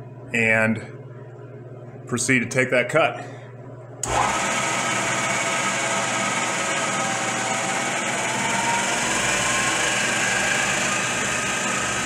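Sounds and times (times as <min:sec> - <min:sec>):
milling machine spindle humming: 0:04.0 - 0:12.0.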